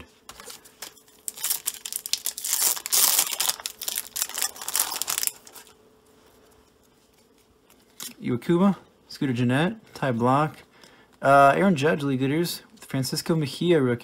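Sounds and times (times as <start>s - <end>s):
foil wrapper crinkling and tearing: 0.3s - 5.8s.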